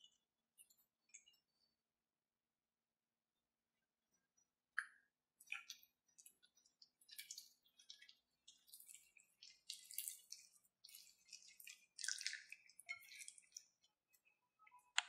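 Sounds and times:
hands squelching wet marinade: 4.8 - 15.0.

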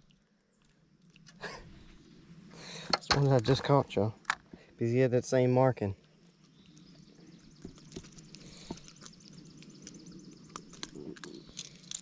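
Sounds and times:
faint outdoor background: 0.0 - 12.0
handling clicks and rustles: 2.8 - 4.6, 6.0 - 12.0.

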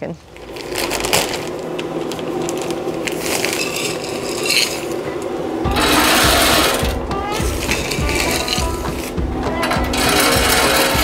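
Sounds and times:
plastic bag crinkling: 0.2 - 5.1
pellets rattling: 0.2 - 5.2, 5.8 - 11.0.

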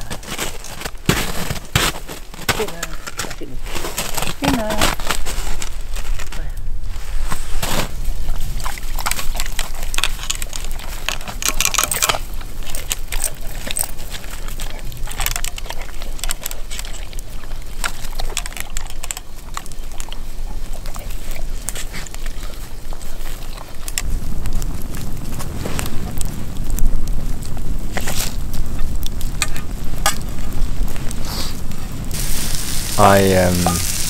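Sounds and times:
dog lapping and chewing food: 8.0 - 24.1.

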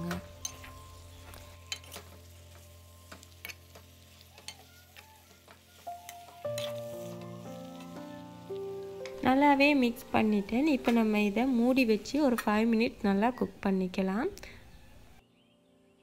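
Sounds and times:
soft background music: 0.0 - 14.5
faint sizzling: 0.0 - 14.6
spoon scraping a metal pot: 1.4 - 2.2, 3.2 - 8.0.

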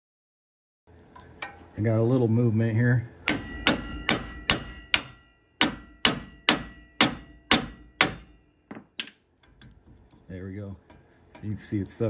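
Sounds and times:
hammer striking metal: 3.2 - 9.2.

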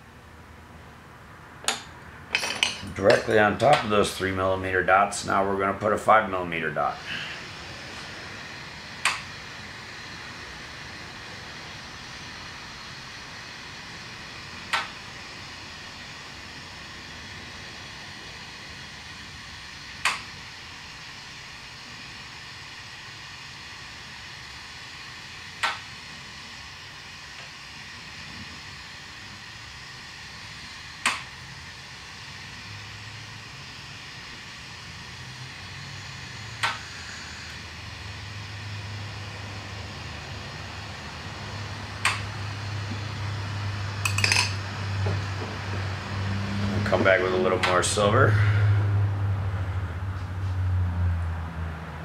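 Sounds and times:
torch hissing: 2.4 - 48.7
glass rods clinking: 44.0 - 44.6.

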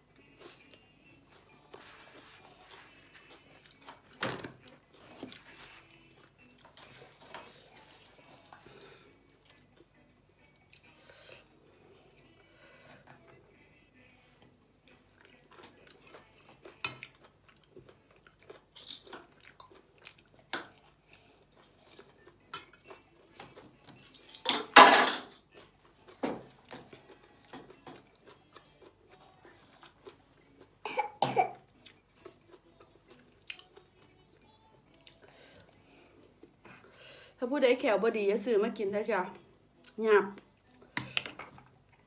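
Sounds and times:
chewing: 0.2 - 24.5, 25.3 - 30.8, 31.6 - 37.0
person coughing: 30.8 - 31.6.

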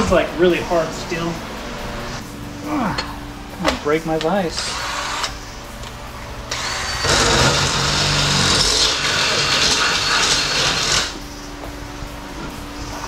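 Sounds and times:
cordless drill boring into steel: 6.6 - 11.2.

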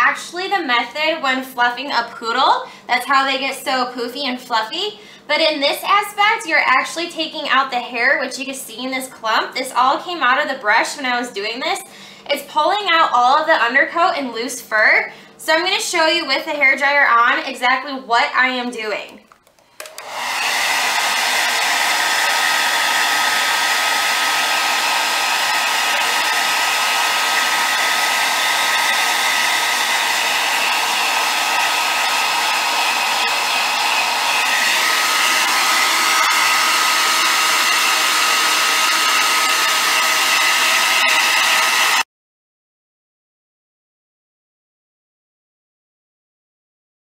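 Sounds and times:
hair dryer blowing: 19.8 - 42.1.

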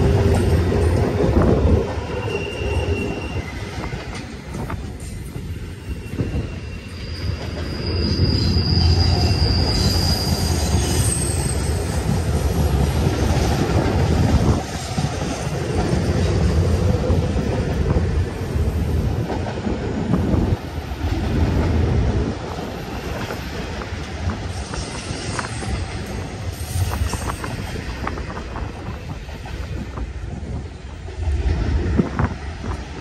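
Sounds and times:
train wheels rumbling on rail: 0.0 - 33.0
high wheel squeal: 2.0 - 4.3, 5.1 - 11.9.

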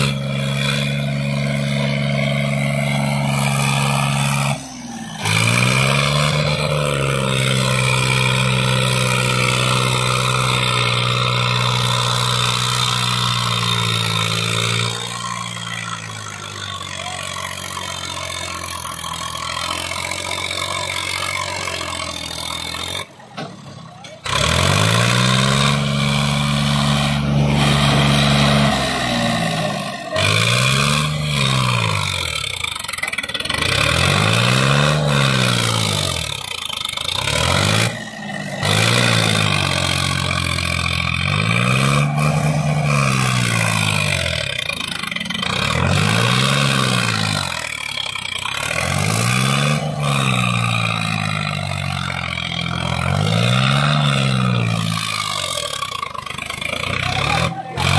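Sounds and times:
tractor diesel engine revving: 0.0 - 57.9.

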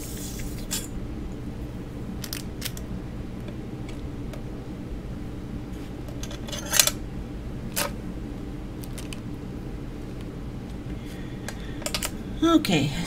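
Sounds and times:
steady low hum: 0.0 - 13.0
tools clicking on table: 11.5 - 12.1.

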